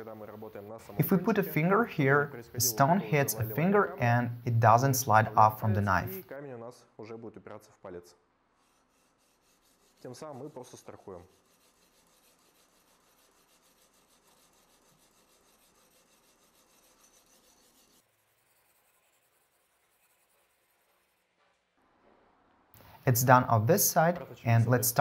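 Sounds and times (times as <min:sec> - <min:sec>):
sharpening stone scraping blade: 0:10.8 - 0:20.3.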